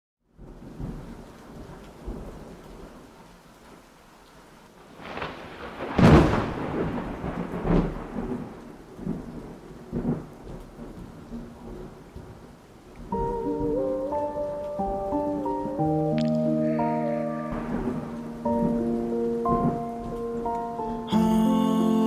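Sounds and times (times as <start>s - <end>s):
steady rain: 0.2s - 22.0s
thunder: 4.9s - 12.4s, 16.2s - 20.5s.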